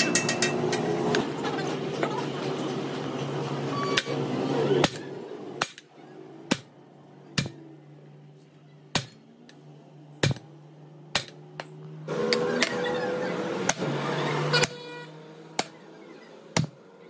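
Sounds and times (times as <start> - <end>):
hammer striking metal: 0.0 - 1.2, 4.8 - 5.9, 6.5 - 6.8, 7.4 - 7.6, 8.9 - 9.3, 10.2 - 10.5, 11.1 - 12.8, 15.6 - 15.8, 16.6 - 16.8.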